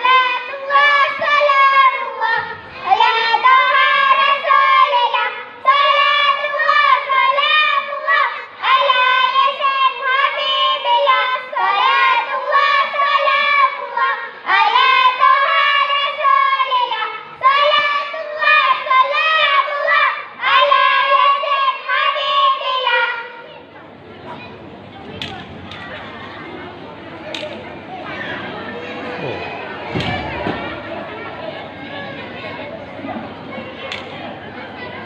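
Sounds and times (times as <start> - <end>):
children chanting in unison: 0.0 - 23.7.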